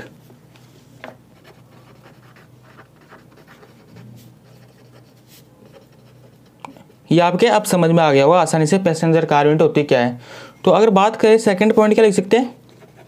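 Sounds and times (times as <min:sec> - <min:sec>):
marker scratching on paper: 0:01.4 - 0:06.8.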